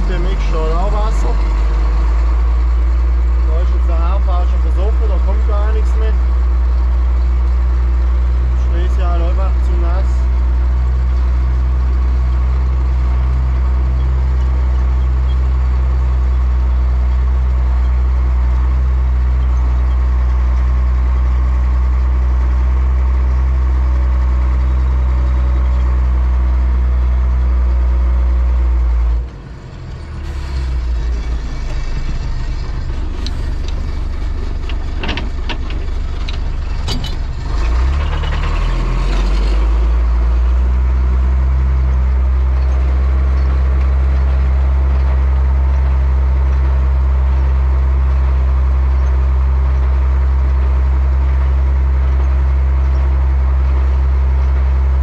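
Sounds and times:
tractor diesel engine running: 0.0s - 55.0s
sharp clicks and rattles: 29.2s - 55.0s.

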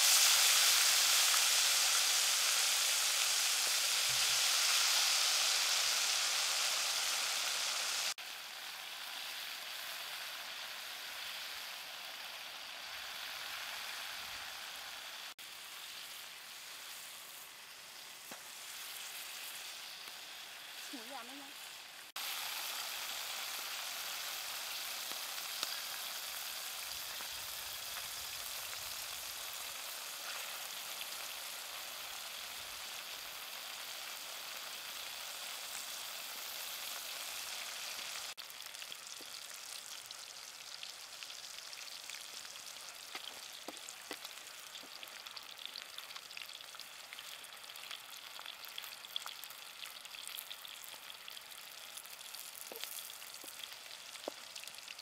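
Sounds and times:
food frying in hot oil: 0.0s - 55.0s
small pops and crackles: 43.0s - 45.1s, 52.3s - 55.0s.

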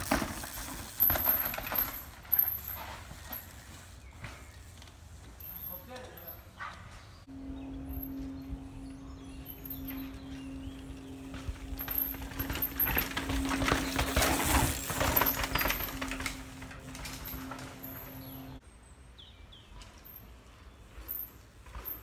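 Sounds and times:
mountain bike rattling over rocks: 0.0s - 6.3s, 9.5s - 18.6s
steady low hum: 7.2s - 18.6s.

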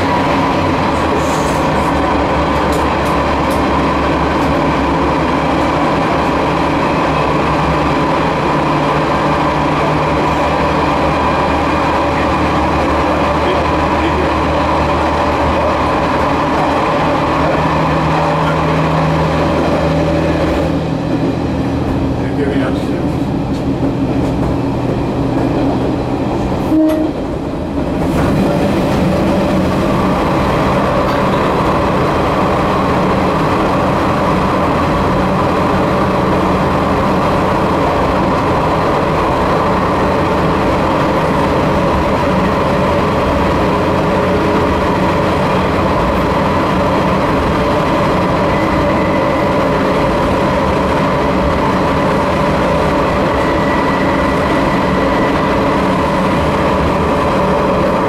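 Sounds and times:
diesel railcar running: 0.0s - 58.0s
train horn blast: 26.6s - 27.3s.

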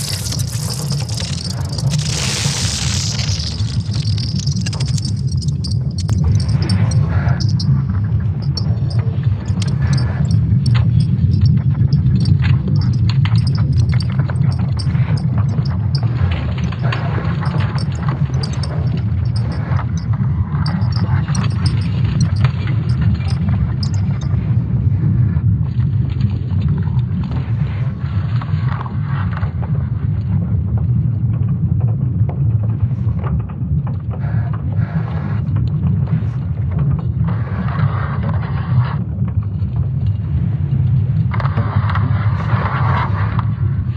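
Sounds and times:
scattered crackles: 0.0s - 24.6s, 34.3s - 43.9s
deep rumble: 0.0s - 43.9s.

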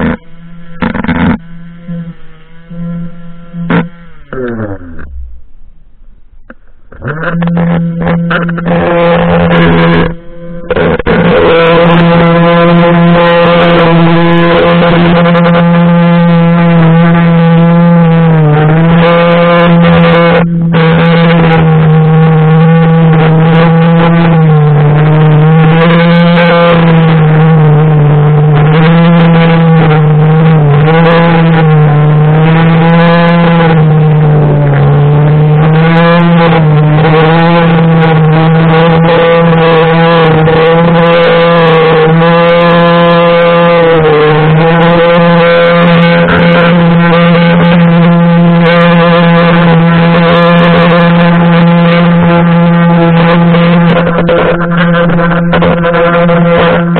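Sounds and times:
string trimmer droning: 0.0s - 56.9s.

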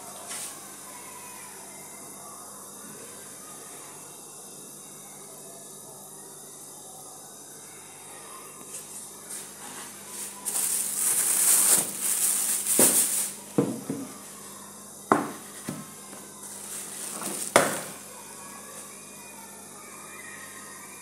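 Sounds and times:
objects knocking on hard surface: 12.8s - 13.0s, 13.6s - 14.1s, 15.1s - 15.9s.

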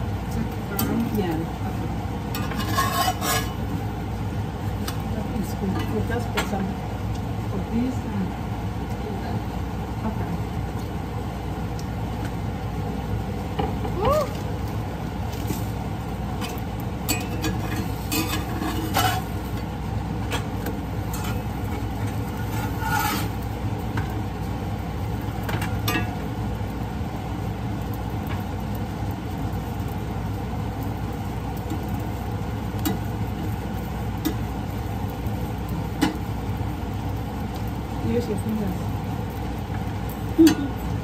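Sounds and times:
steady low hum: 0.0s - 41.0s
metal spatula scraping a pan: 2.3s - 3.7s, 17.1s - 19.5s, 21.1s - 23.4s.

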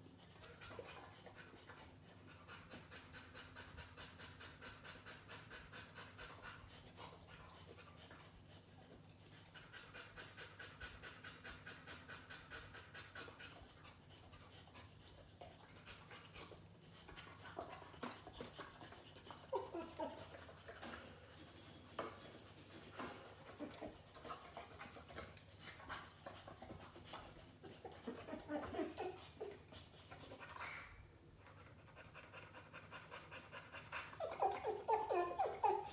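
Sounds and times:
dog panting: 0.0s - 35.9s
clicks and rustles of dog moving: 15.5s - 30.9s.

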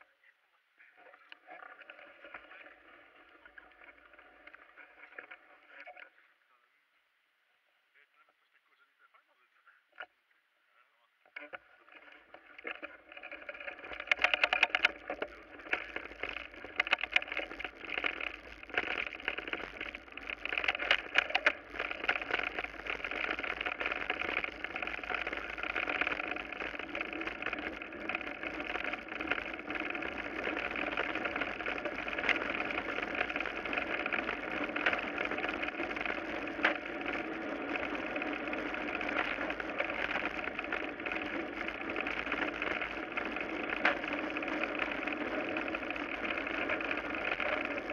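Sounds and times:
bike rattling over rough gravel: 1.4s - 5.8s, 11.7s - 47.9s
tyres whirring on gravel: 11.8s - 47.9s.

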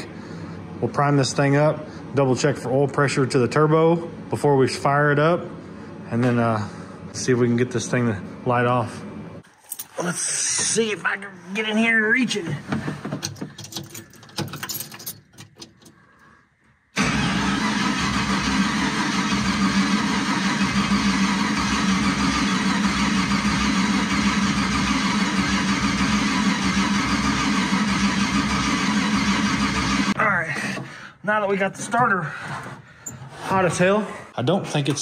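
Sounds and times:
starter cranking engine: 17.0s - 30.2s.

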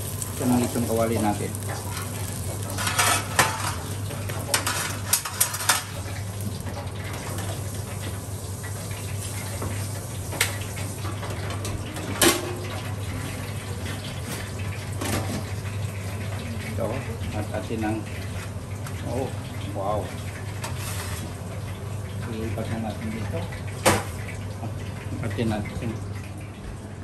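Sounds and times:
steel kitchenware clattering: 1.7s - 6.0s.

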